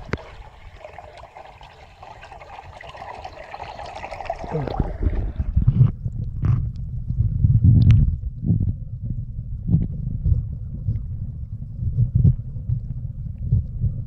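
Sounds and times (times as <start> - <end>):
stream trickling: 0.0 - 5.7
muffled underwater rumble: 0.0 - 14.0.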